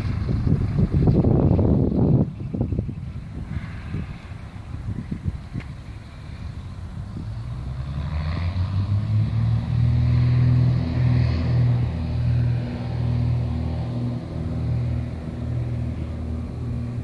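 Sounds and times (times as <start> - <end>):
light plane engine droning: 0.0 - 17.0
wind noise on microphone: 0.0 - 17.0.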